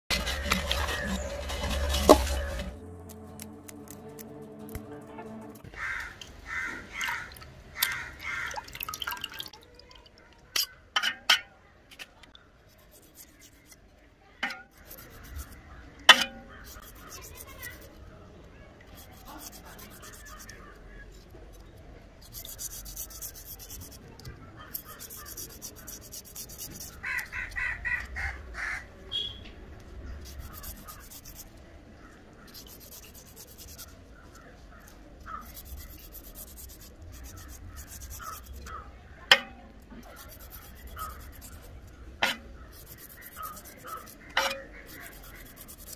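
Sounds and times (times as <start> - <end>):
knife scraping fish scales: 0.1 - 4.3, 12.7 - 18.0, 18.9 - 28.1, 30.1 - 31.6, 32.4 - 45.9
crow cawing: 5.7 - 8.8, 27.0 - 28.9.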